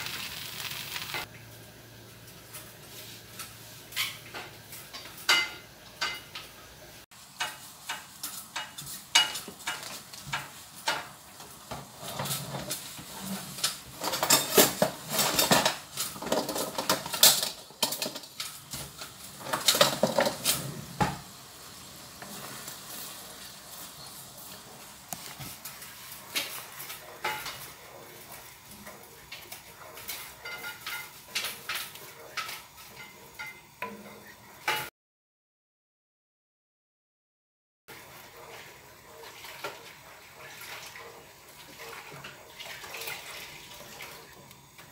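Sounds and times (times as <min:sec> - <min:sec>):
food sizzling: 0:00.0 - 0:34.9, 0:37.9 - 0:44.9
spatula scraping a wok: 0:07.3 - 0:34.8.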